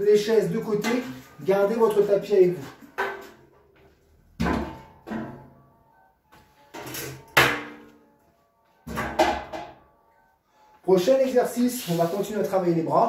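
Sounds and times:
metal folding chairs clanking: 0:04.4 - 0:05.6, 0:06.6 - 0:07.9.

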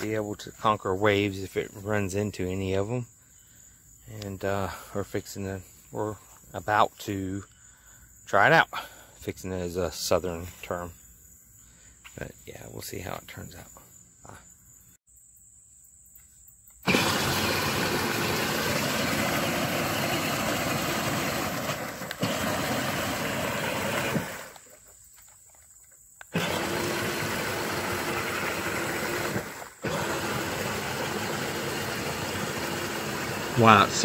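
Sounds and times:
toy car wheels splashing water: 0:16.9 - 0:24.7
faint electric motor whine: 0:26.3 - 0:34.0.

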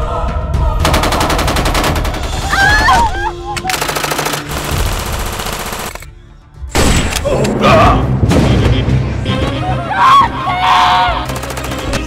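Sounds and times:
automatic gunfire bursts: 0:00.9 - 0:02.4, 0:03.7 - 0:06.0, 0:11.3 - 0:12.0.

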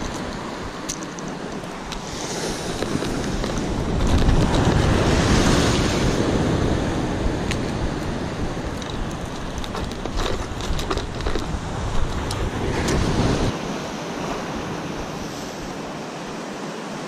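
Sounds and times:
wind buffeting microphone: 0:00.0 - 0:16.1
surf washing over rocks: 0:00.0 - 0:17.0.

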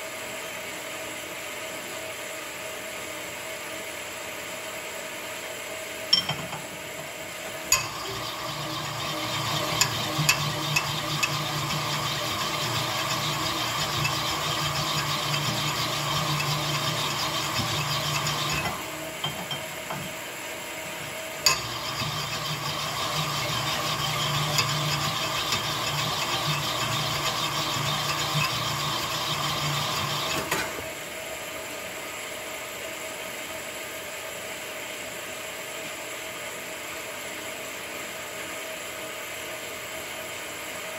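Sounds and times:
metallic grinding hum: 0:07.4 - 0:20.1, 0:20.8 - 0:30.5.

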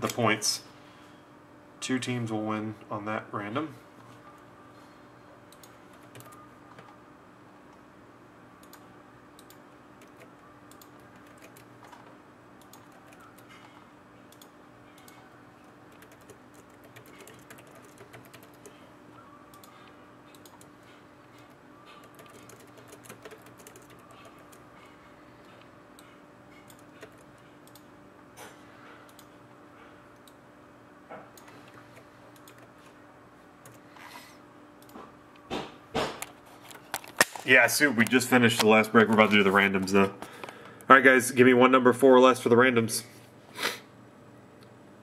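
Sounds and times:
typing on computer keyboard: 0:05.5 - 0:06.4, 0:09.4 - 0:15.2, 0:15.9 - 0:18.8, 0:21.4 - 0:24.6, 0:26.0 - 0:27.9, 0:31.4 - 0:32.7.

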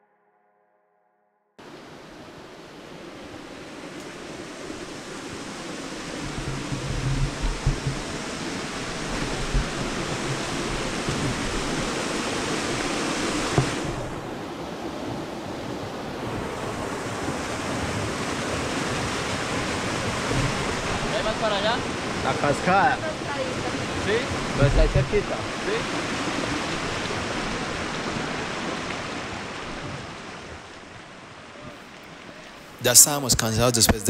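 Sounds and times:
waterfall rushing: 0:01.6 - 0:34.0
wind thumps on microphone: 0:05.3 - 0:16.6, 0:19.3 - 0:21.1, 0:24.3 - 0:25.3.

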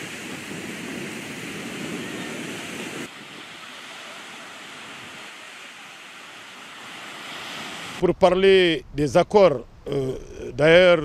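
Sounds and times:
waves breaking on beach: 0:00.0 - 0:08.0
wind: 0:00.0 - 0:11.0.

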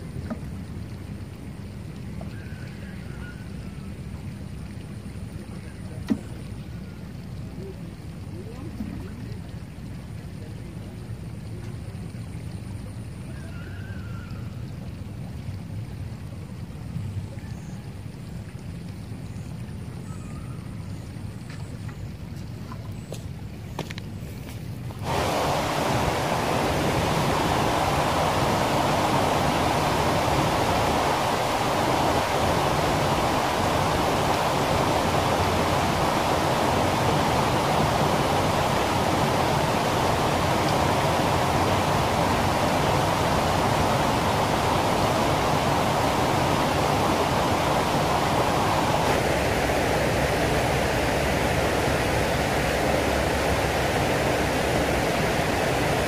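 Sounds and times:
water rushing through canal: 0:00.0 - 0:56.0
water splashing in: 0:24.4 - 0:56.0.

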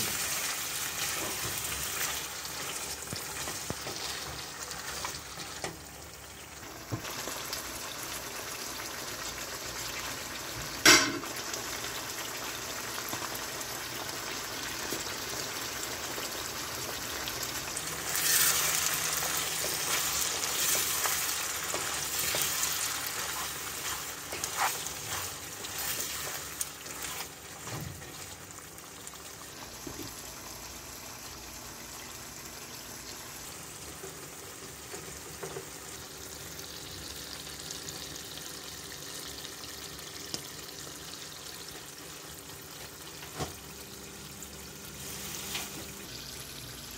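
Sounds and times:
meat sizzling in oil: 0:00.0 - 0:46.9
spatula scraping wok: 0:18.0 - 0:27.8.

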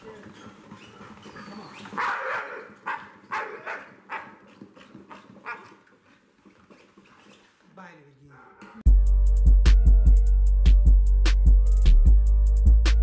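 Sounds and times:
dog barking: 0:02.0 - 0:04.4, 0:05.1 - 0:05.8.

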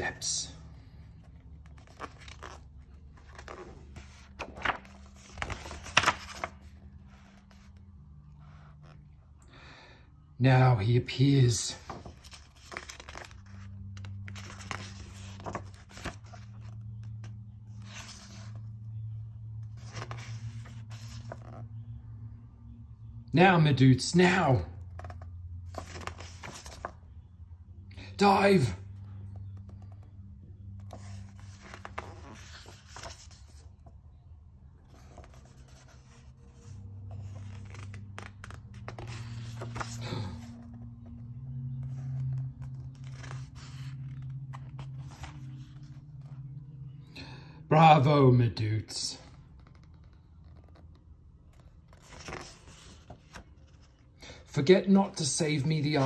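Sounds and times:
book pages rustling: 0:00.0 - 0:09.2, 0:11.8 - 0:22.0, 0:24.9 - 0:27.3, 0:29.2 - 0:34.2, 0:34.8 - 0:46.6, 0:49.3 - 0:54.2
low steady hum: 0:00.0 - 0:56.0.

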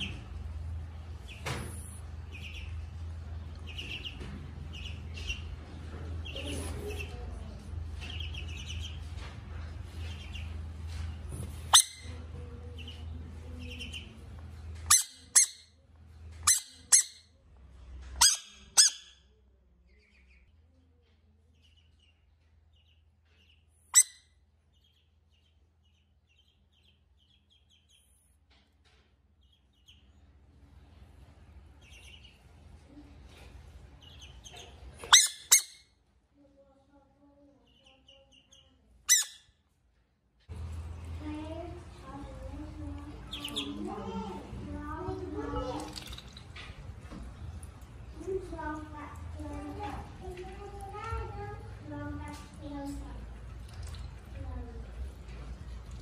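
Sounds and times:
ducklings peeping: 0:00.0 - 0:15.6, 0:19.8 - 0:20.8, 0:21.4 - 0:28.2, 0:29.4 - 0:35.8, 0:37.6 - 0:39.4, 0:41.9 - 0:46.5.

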